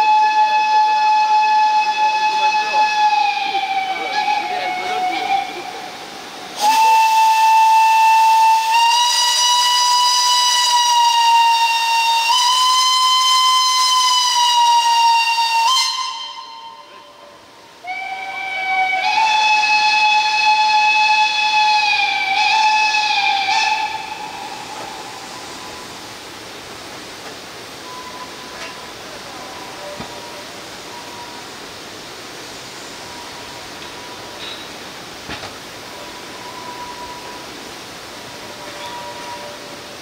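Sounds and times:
steam locomotive whistle blasts: 0:00.0 - 0:05.7, 0:06.6 - 0:26.0, 0:35.9 - 0:37.6, 0:38.4 - 0:40.0
steady steam hiss: 0:00.0 - 0:40.0.

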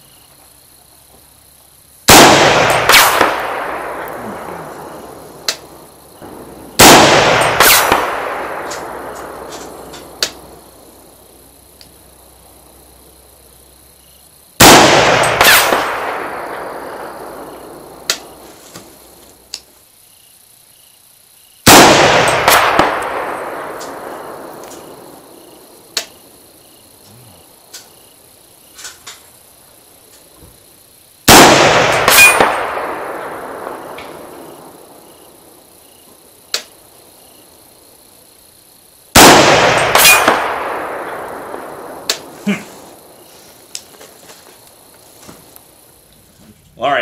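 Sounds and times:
gunshots with echo: 0:02.1 - 0:05.5, 0:06.2 - 0:10.0, 0:14.6 - 0:17.9, 0:21.7 - 0:25.2, 0:31.3 - 0:34.4, 0:39.2 - 0:42.6.

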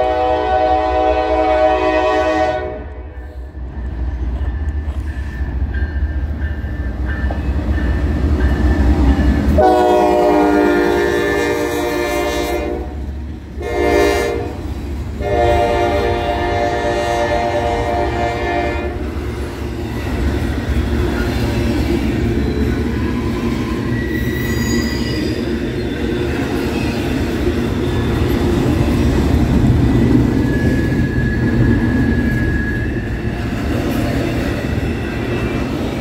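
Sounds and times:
train horn blasts: 0:00.0 - 0:03.3, 0:09.6 - 0:13.0, 0:13.6 - 0:14.6, 0:15.2 - 0:19.0.

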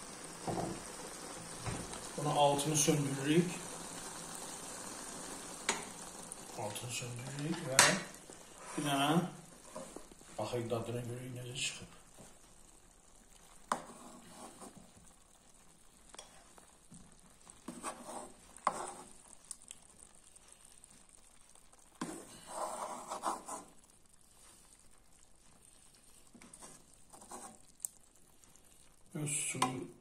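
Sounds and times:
metal spoon scraping a frying pan: 0:13.7 - 0:14.8.

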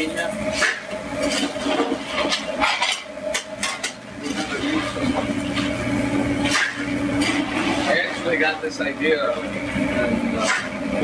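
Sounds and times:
steady low hum: 0:00.0 - 0:11.0
metal pans and utensils clattering: 0:00.5 - 0:05.7, 0:06.4 - 0:08.4, 0:10.4 - 0:10.8.

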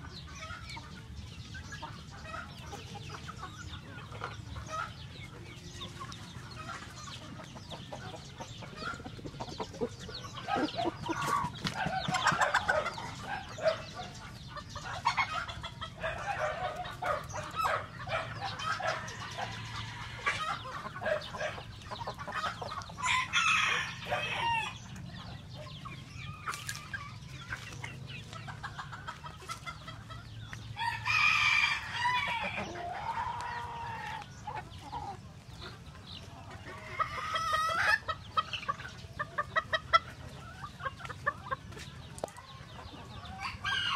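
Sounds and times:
chickens clucking: 0:00.0 - 0:43.9
rooster crowing: 0:23.0 - 0:24.8, 0:30.8 - 0:33.5.

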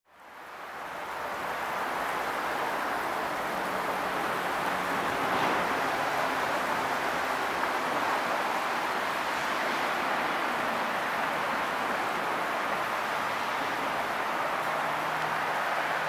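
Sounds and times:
steady rushing noise: 0:00.6 - 0:16.0.

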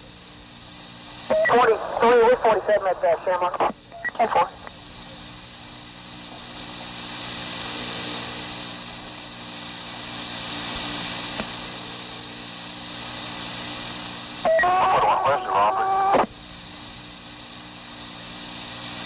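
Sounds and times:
radio tape hiss and hum: 0:00.0 - 0:19.0
loud radio voice: 0:01.3 - 0:04.7, 0:14.5 - 0:16.3.

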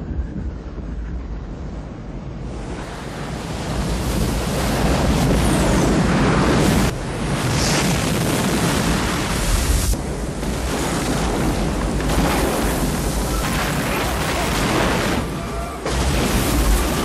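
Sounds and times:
wind: 0:00.0 - 0:17.0
crashing water: 0:06.6 - 0:17.0.

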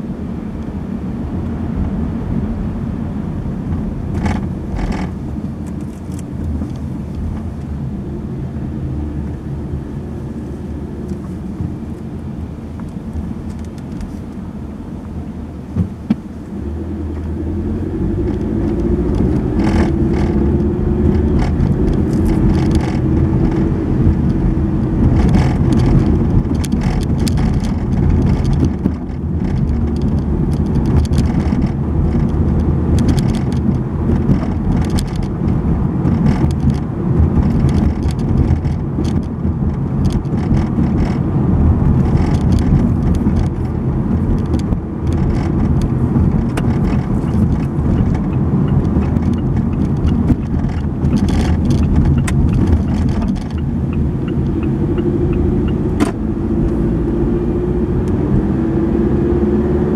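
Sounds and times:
car engine rumbling: 0:00.0 - 0:59.9
road noise: 0:00.0 - 0:59.9
knocks and rattles: 0:25.0 - 0:41.2, 0:41.9 - 0:53.7.

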